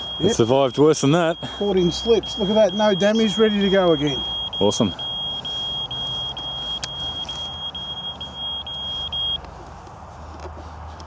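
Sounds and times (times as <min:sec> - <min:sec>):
high beeping alarm: 0:00.0 - 0:09.4.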